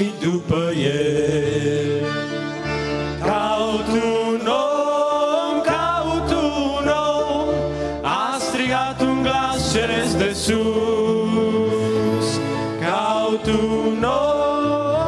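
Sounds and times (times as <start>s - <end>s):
male group singing: 0.0s - 2.4s, 3.2s - 15.0s
accordion: 0.0s - 15.0s
keyboard accompaniment: 0.0s - 15.0s.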